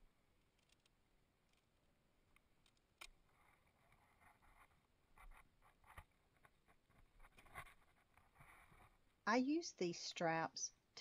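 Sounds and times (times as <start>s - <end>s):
faint scratching: 3.2s - 9.1s.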